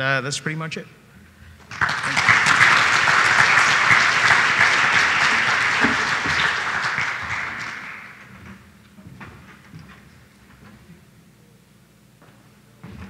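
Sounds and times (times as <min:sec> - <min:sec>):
audience applauding: 0:01.6 - 0:08.5.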